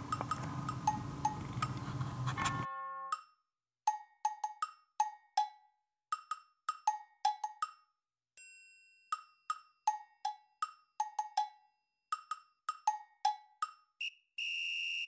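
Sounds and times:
bouncy wood-block music: 0:02.4 - 0:08.0, 0:09.0 - 0:14.0.

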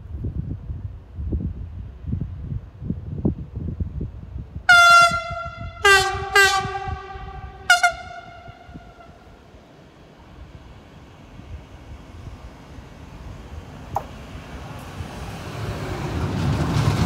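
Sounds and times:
locomotive horn blasts: 0:04.7 - 0:09.3.

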